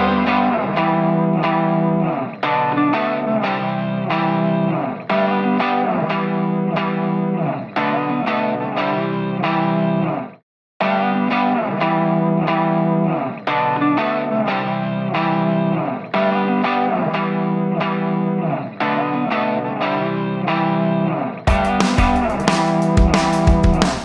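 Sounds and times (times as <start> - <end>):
drums: 0.0 - 1.9, 21.4 - 24.0
guitar plucking repeating pattern: 0.0 - 10.2, 10.8 - 24.0.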